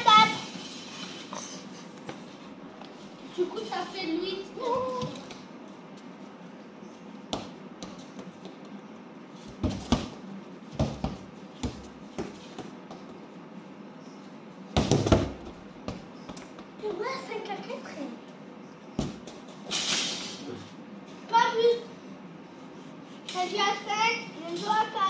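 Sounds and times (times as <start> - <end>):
basketball bouncing on hard floor: 7.3 - 8.6, 9.5 - 13.2, 14.8 - 16.6, 19.0 - 19.4.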